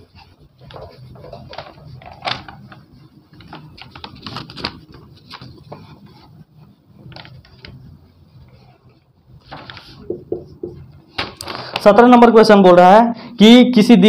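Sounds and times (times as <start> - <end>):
duster rubbing on whiteboard: 0.0 - 11.2.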